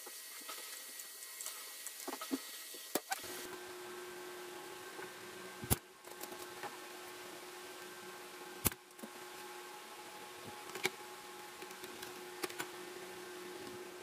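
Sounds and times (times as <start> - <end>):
faint steady hum: 2.9 - 14.0.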